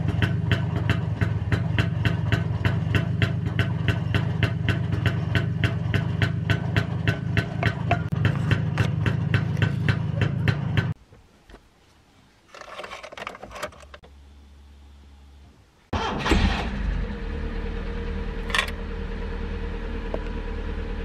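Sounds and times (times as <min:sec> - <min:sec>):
car engine running: 0:00.0 - 0:11.0, 0:16.0 - 0:21.0
engine cranking and idling: 0:00.0 - 0:11.0, 0:15.9 - 0:21.0
rustling: 0:11.0 - 0:14.0.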